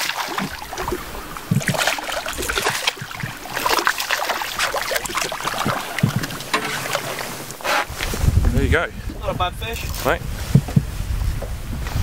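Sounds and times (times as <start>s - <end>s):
fish thrashing and splashing: 0.0s - 8.0s.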